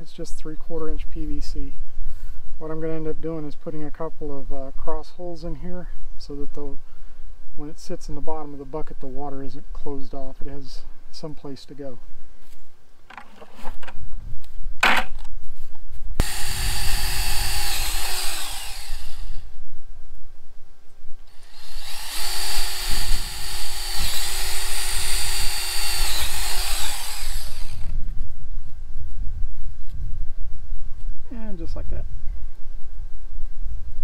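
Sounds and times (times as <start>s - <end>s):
cordless drill boring plastic pipe: 16.2s - 19.4s, 21.3s - 28.0s.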